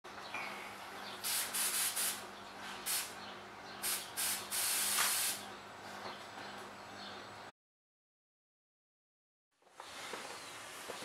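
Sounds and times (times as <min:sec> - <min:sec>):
aerosol spray hissing bursts: 0:01.2 - 0:02.2, 0:02.9 - 0:03.1, 0:03.8 - 0:05.4.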